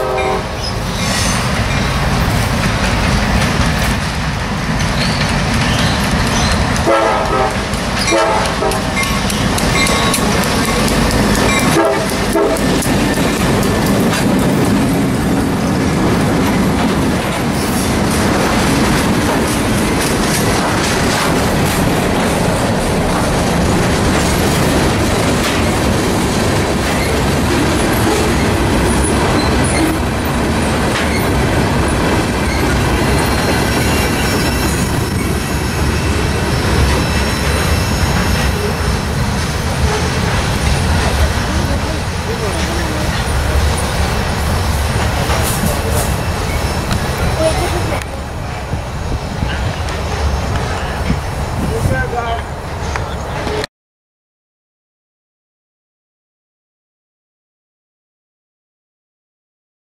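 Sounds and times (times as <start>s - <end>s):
train horn blowing: 0.0s - 0.6s, 6.8s - 9.0s, 11.6s - 12.8s
train wheels clattering on rail: 0.0s - 53.6s.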